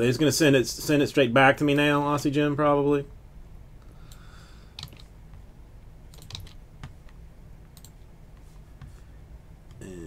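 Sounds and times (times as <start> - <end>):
faint low hum: 0.0 - 10.0
computer keyboard and mouse clicks: 4.1 - 5.1, 6.1 - 8.0.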